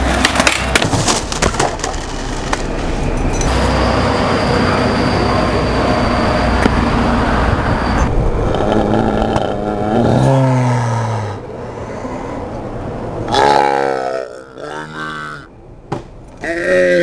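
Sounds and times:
steady rushing noise: 0.0s - 13.3s
man groaning in pain: 8.5s - 11.4s, 16.4s - 17.0s.

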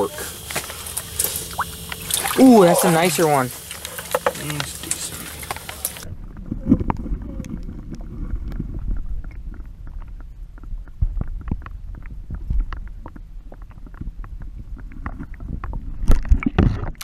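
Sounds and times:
muffled underwater rumble: 0.0s - 17.0s
faint scattered clicks: 3.4s - 6.1s.

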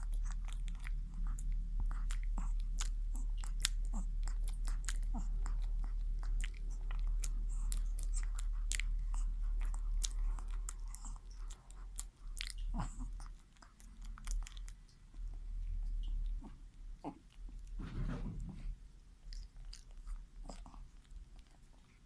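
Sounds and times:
dog chewing wetly: 0.0s - 22.0s.

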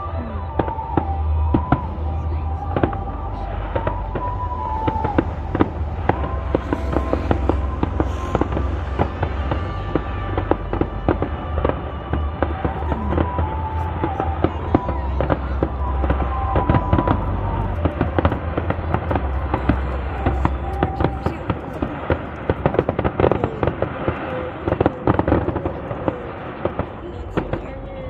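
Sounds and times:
fireworks bangs and crackles: 0.0s - 28.0s
steady low rumble: 0.0s - 28.0s.

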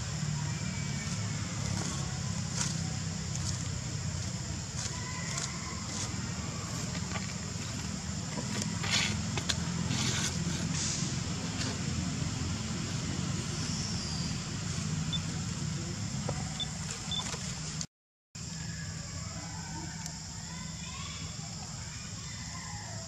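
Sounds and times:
high hiss: 0.0s - 16.9s.

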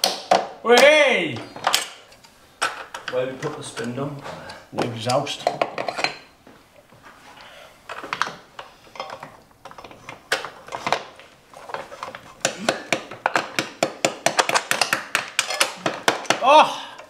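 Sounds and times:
hand tools tapping on metal: 0.0s - 6.2s, 7.9s - 11.1s, 12.0s - 17.0s.

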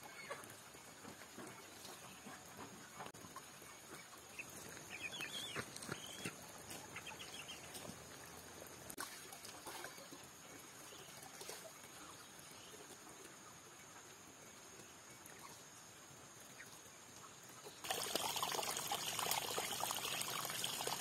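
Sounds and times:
chickens clucking: 0.0s - 8.1s.

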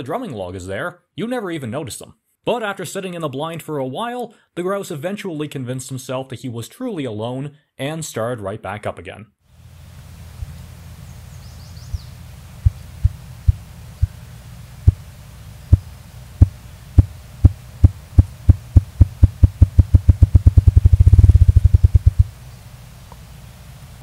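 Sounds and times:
grouse drumming wings: 15.7s - 22.3s.

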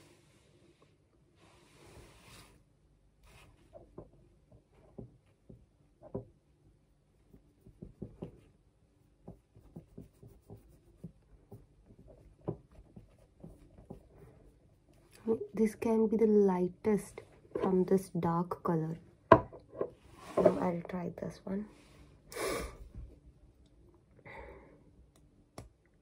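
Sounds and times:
fingertip rubbing on skin: 9.0s - 15.0s.

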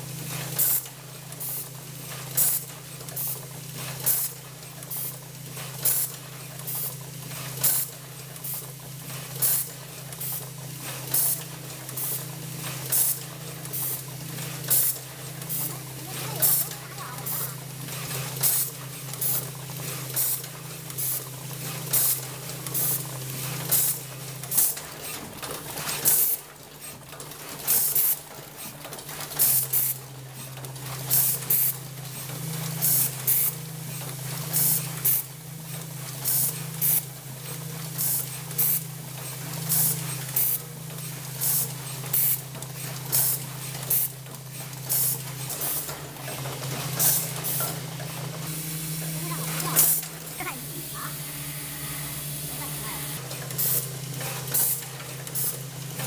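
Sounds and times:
low machine hum: 45.9s - 53.4s.

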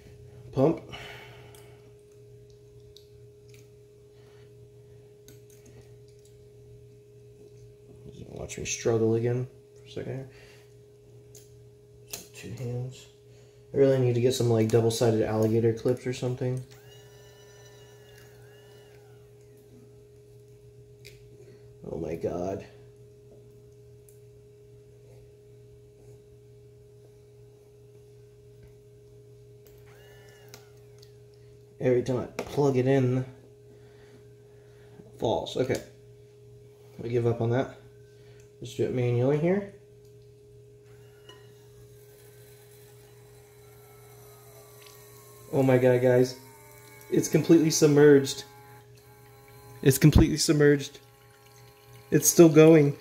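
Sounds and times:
thin steady tone: 0.0s - 28.9s, 40.8s - 53.0s
low hum: 0.0s - 53.0s
small motor humming: 16.6s - 20.1s, 29.6s - 31.2s, 40.9s - 53.0s
clips and wires clicking: 42.8s - 53.0s.

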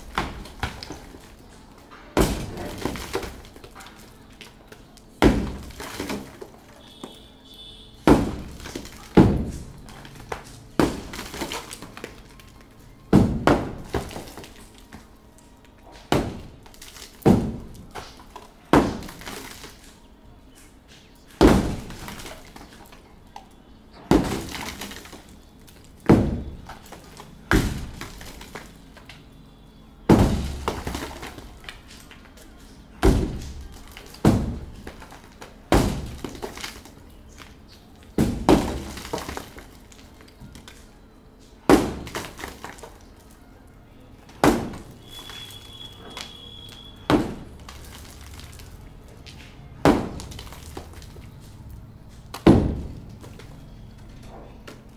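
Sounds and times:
sledgehammer striking masonry: 0.0s - 4.0s, 5.1s - 12.2s, 13.1s - 14.7s, 16.0s - 19.9s, 21.2s - 22.8s, 23.9s - 29.1s, 30.0s - 37.5s, 38.1s - 40.0s, 41.5s - 43.0s, 44.3s - 48.6s, 49.7s - 51.3s, 52.3s - 53.5s
falling debris clattering: 0.0s - 7.2s, 8.0s - 20.1s, 20.9s - 29.3s, 30.0s - 40.9s, 41.5s - 43.6s, 44.2s - 54.9s.

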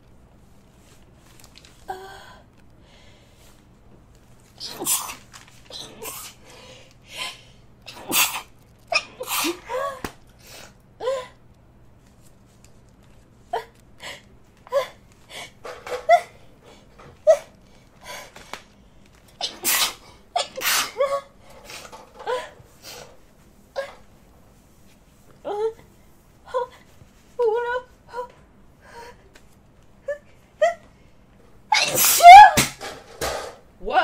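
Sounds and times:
person sneezing: 4.6s - 6.4s, 7.9s - 10.1s, 19.4s - 21.3s, 31.7s - 32.7s.

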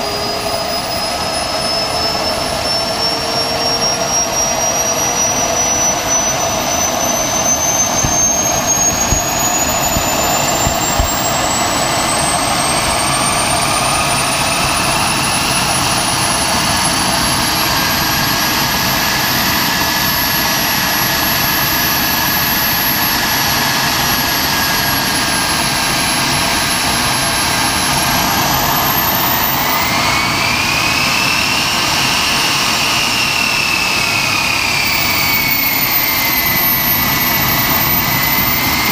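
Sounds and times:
turbine engine whining: 0.0s - 38.9s
steady rushing noise: 6.1s - 17.7s.

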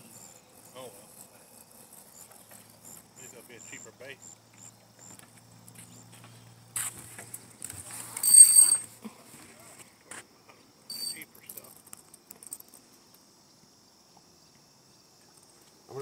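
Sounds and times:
fishing reel whirring squeal: 8.2s - 8.9s, 10.9s - 11.2s.

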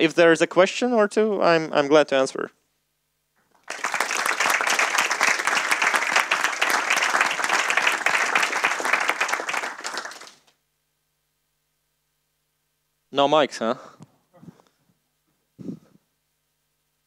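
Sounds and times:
audience applause: 3.6s - 10.5s.

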